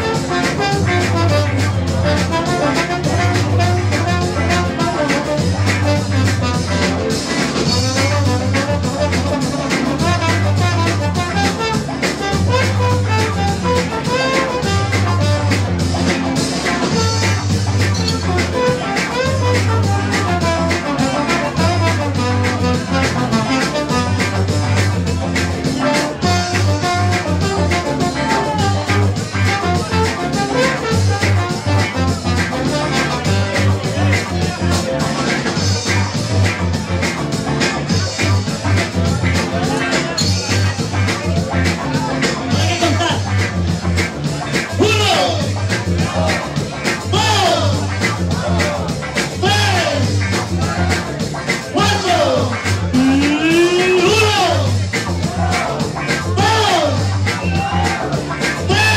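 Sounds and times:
trombone melody: 0:00.0 - 0:34.1
bass line: 0:00.0 - 0:58.9
drum kit: 0:00.0 - 0:58.9
electric guitar: 0:00.0 - 0:58.9.

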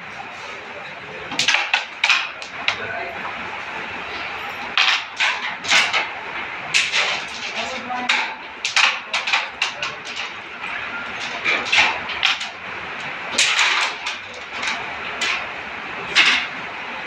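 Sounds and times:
carrom pieces clicking on board: 0:01.3 - 0:02.8, 0:04.7 - 0:15.5.

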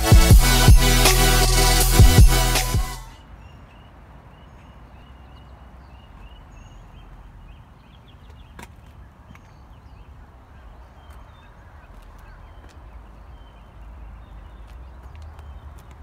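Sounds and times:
electronic music: 0:00.0 - 0:03.2
birds chirping: 0:02.0 - 0:16.0.

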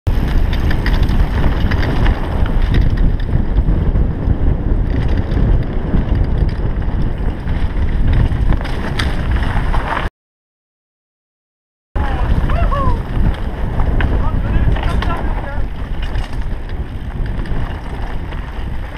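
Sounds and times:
bike knocks and rattles: 0:00.1 - 0:10.1, 0:12.4 - 0:18.9
wind buffeting microphone: 0:00.1 - 0:10.1, 0:12.0 - 0:18.9.

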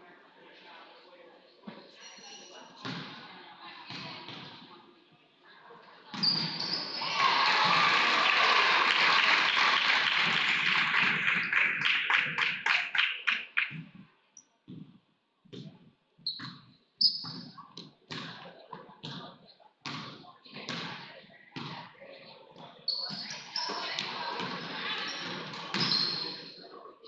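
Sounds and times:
sneakers squeaking: 0:01.9 - 0:03.0, 0:06.1 - 0:07.1, 0:14.7 - 0:20.9, 0:21.6 - 0:26.7
crowd clapping rhythmically: 0:07.0 - 0:13.9.

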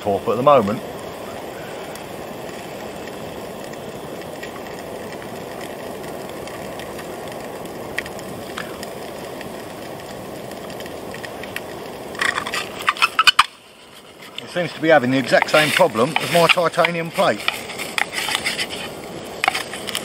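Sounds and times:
faint crackles: 0:00.0 - 0:20.0
gas stove hissing: 0:00.0 - 0:20.0
sausages frying: 0:00.0 - 0:20.0.

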